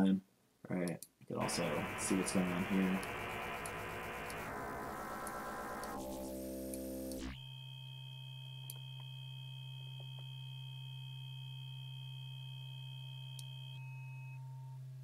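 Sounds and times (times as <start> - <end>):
synthesizer tone: 1.4 - 7.5.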